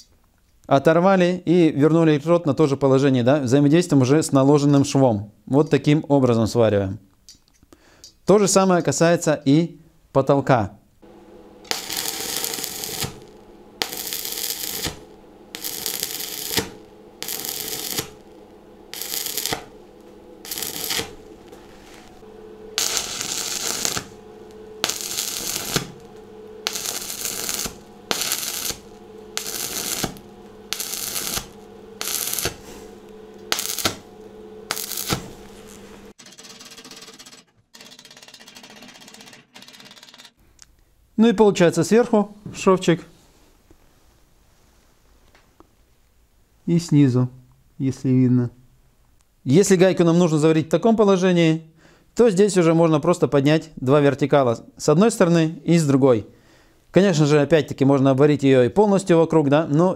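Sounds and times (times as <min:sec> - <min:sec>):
welding arc crackling: 0:11.0 - 0:36.2.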